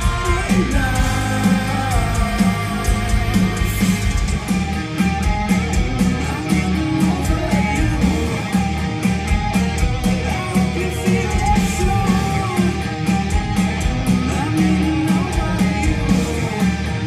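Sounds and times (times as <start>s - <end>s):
man singing: 0.0s - 4.0s, 6.0s - 8.6s, 10.2s - 13.0s, 14.1s - 17.0s
loud electric guitars: 0.0s - 17.0s.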